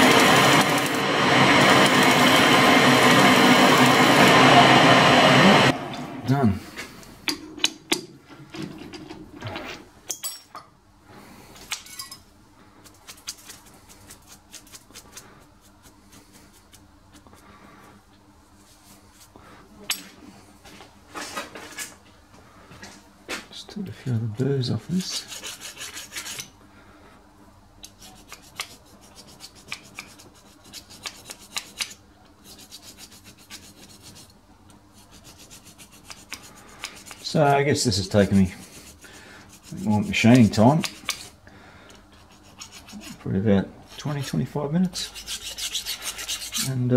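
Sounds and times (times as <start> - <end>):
faint steady hum: 5.7 - 46.9
hand file rasping on metal: 24.9 - 26.5, 27.8 - 34.3, 34.9 - 41.4, 42.2 - 43.3, 43.9 - 46.8.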